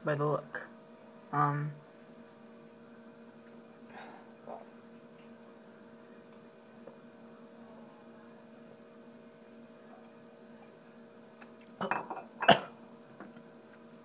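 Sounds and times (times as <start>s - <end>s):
faint room hum: 0.0s - 14.0s
glass set down on table: 11.8s - 12.6s.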